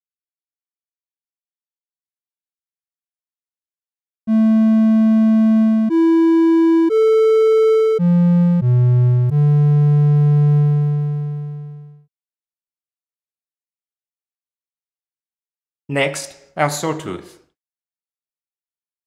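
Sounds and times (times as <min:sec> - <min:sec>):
synthesizer triangle wave notes: 0:04.3 - 0:12.1.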